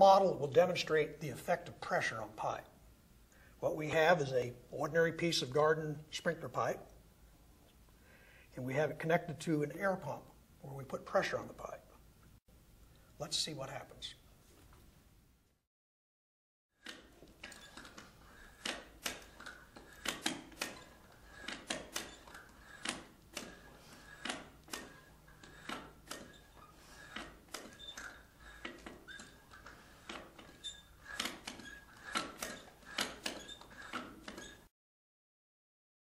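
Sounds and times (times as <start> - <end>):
plastic pipe clicking and creaking: 16.8 - 34.6.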